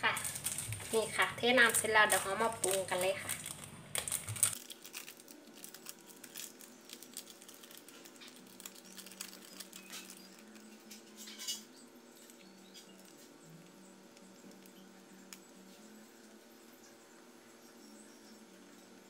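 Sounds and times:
plastic sachet crinkling: 0:00.0 - 0:11.0
dried flakes pattering into bowl: 0:00.0 - 0:11.6.

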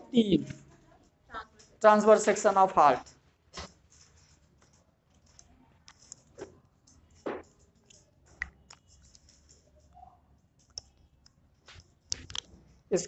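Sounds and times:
small clicks and taps: 0:03.0 - 0:12.6.

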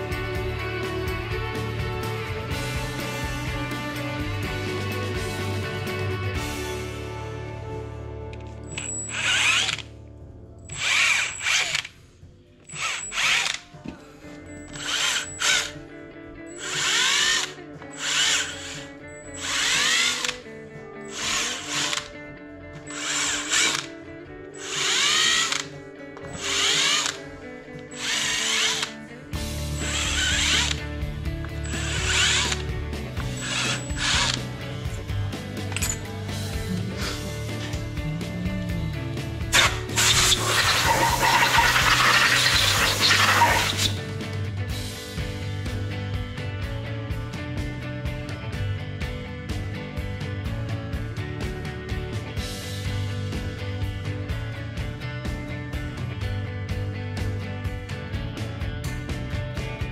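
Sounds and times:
cordless drill bursts: 0:08.7 - 0:09.8, 0:10.7 - 0:11.9, 0:12.7 - 0:13.6, 0:14.7 - 0:15.8, 0:16.6 - 0:20.4, 0:21.1 - 0:22.1, 0:22.9 - 0:23.9, 0:24.6 - 0:25.7, 0:26.4 - 0:27.2, 0:27.9 - 0:29.0, 0:29.8 - 0:30.8, 0:31.6 - 0:34.5, 0:39.5 - 0:44.0.

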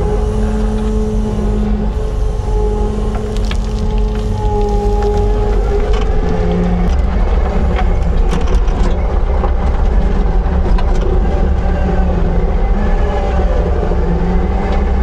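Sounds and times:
heavy machine engine under load: 0:00.0 - 0:15.0.

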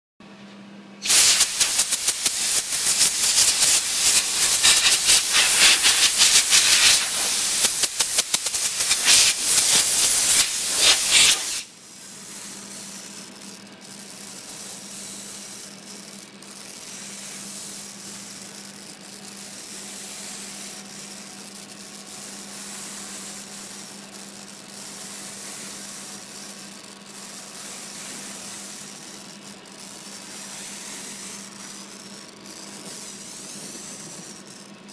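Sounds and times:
torch flame hissing: 0:01.0 - 0:11.7
rapid crackle: 0:01.1 - 0:11.6.

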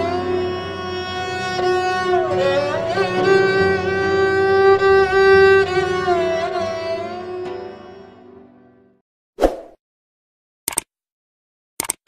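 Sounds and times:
violin playing slow melody: 0:00.0 - 0:08.9.

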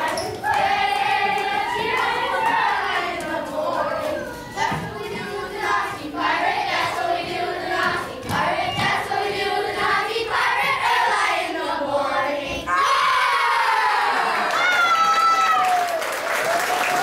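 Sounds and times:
children singing: 0:00.0 - 0:13.2.

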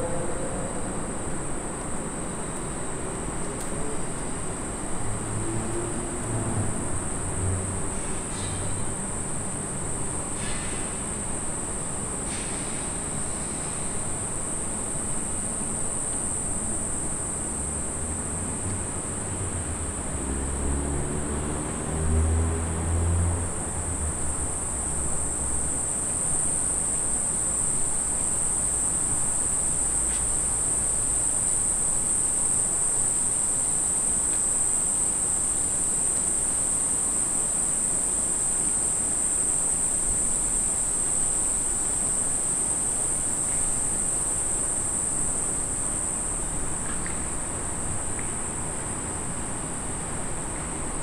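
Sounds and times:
insects calling: 0:00.0 - 0:06.3, 0:23.7 - 0:50.6
low outdoor background hum: 0:00.0 - 0:51.0.

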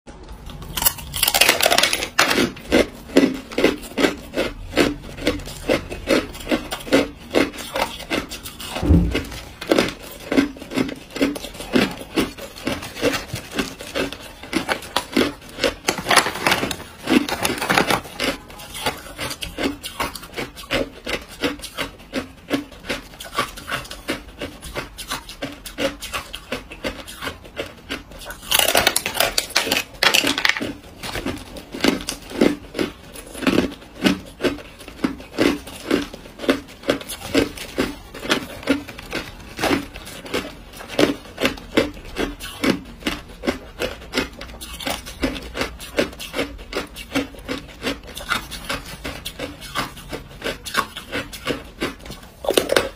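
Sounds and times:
ice crunching in mouth: 0:00.5 - 0:52.9
low thud: 0:08.8 - 0:09.4.

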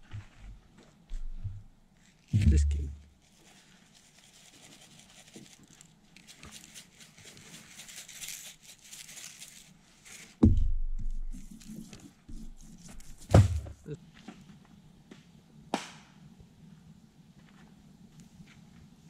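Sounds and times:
spice shaker rattling: 0:03.2 - 0:10.3
loud thump: 0:10.4 - 0:11.2, 0:13.2 - 0:13.9.

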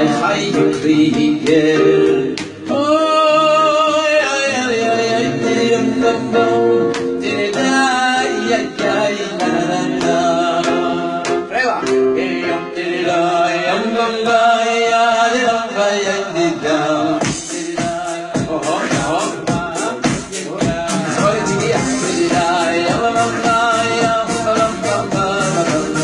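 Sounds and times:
man singing into microphone: 0:00.0 - 0:11.6, 0:12.4 - 0:26.0.

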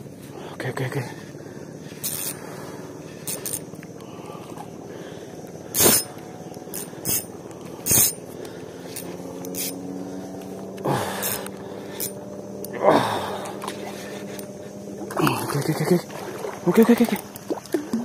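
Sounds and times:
fishing reel whirring: 0:01.8 - 0:04.8, 0:05.7 - 0:12.9.

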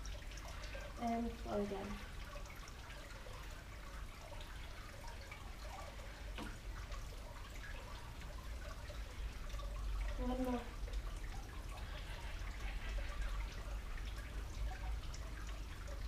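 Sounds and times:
water trickling and dripping: 0:00.0 - 0:16.0.

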